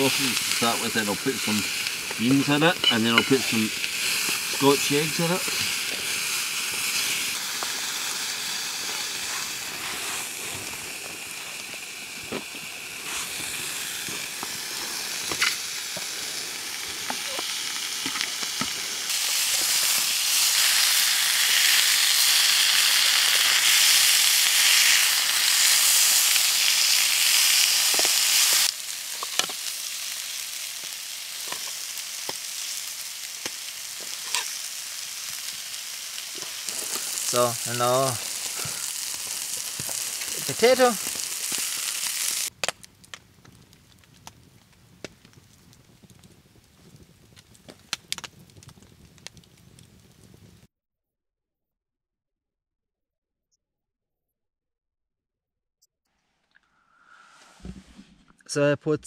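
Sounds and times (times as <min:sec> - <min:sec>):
food sizzling in frying pans: 0:00.0 - 0:42.8.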